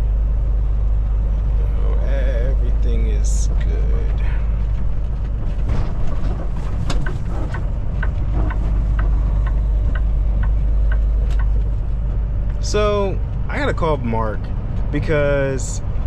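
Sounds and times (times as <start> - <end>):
truck engine and road rumble: 0.0 - 16.0
light even ticking: 7.0 - 13.4.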